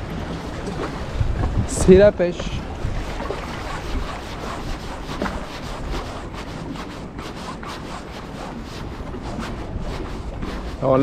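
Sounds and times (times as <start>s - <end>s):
wind buffeting microphone: 0.0s - 11.0s
clothing rubbing against camera: 2.8s - 11.0s.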